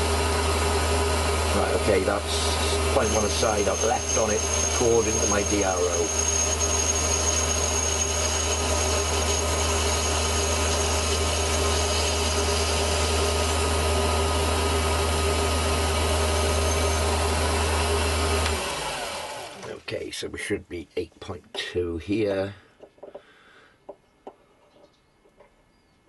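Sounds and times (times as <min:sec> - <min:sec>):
metal lathe running: 0:00.0 - 0:19.6
faint high whine: 0:01.5 - 0:12.7.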